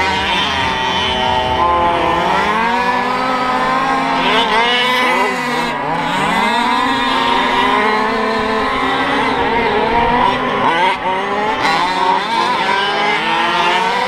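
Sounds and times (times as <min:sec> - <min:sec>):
small two-stroke engines revving: 0:00.0 - 0:14.0.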